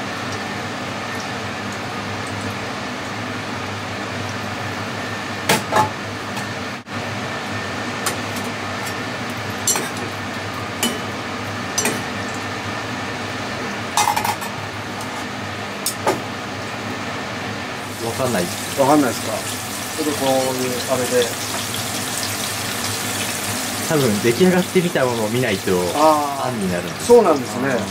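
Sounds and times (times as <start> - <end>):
steady background hum: 0.0 - 27.9
utensils clinking against pots: 9.6 - 10.1, 10.8 - 11.1, 11.8 - 12.1.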